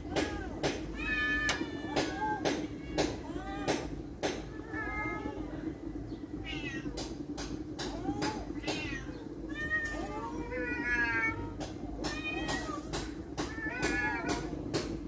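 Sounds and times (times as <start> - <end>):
low hum: 0.0 - 15.0
cat meowing: 6.4 - 7.0.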